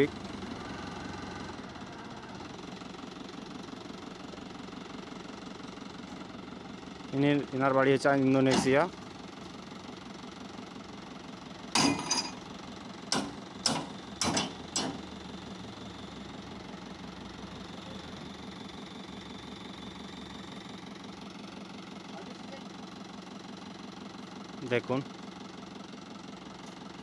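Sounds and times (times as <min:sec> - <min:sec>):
tractor engine idling: 0:00.0 - 0:27.0
sharp knocks on trailer latches: 0:13.1 - 0:15.1.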